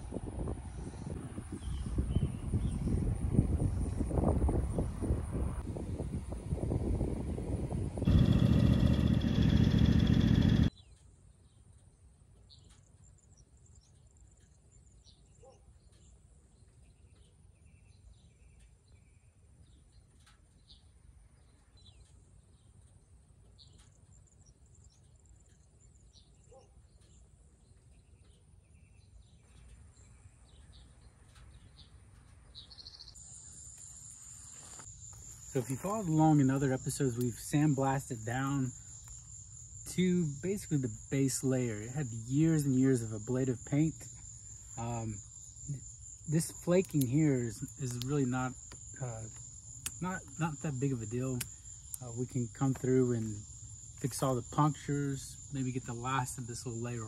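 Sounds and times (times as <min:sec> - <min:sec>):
high insect drone: 0:08.0 - 0:10.7, 0:33.2 - 0:57.0
faint bird chirps: 0:10.2 - 0:37.1.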